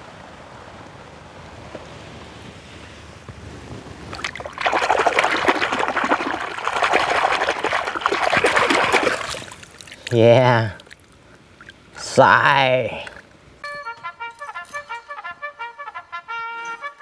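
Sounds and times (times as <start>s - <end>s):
background hiss: 0.0s - 17.0s
hand splashing through water: 4.1s - 11.8s.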